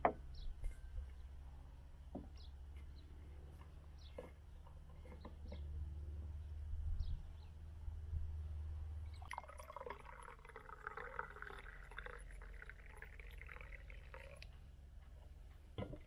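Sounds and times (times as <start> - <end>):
tea pouring into a mug: 9.2 - 14.5.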